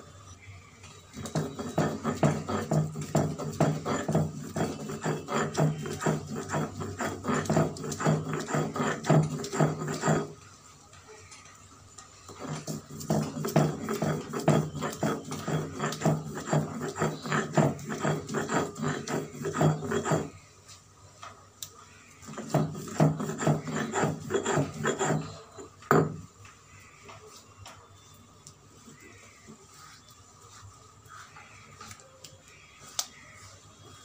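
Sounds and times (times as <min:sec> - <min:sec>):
stone roller grinding on stone: 0:01.1 - 0:10.5, 0:12.3 - 0:20.5, 0:22.1 - 0:26.3.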